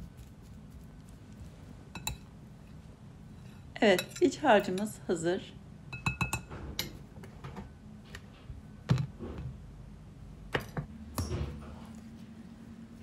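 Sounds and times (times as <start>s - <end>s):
fork clinking glass bowl: 1.9s - 2.3s.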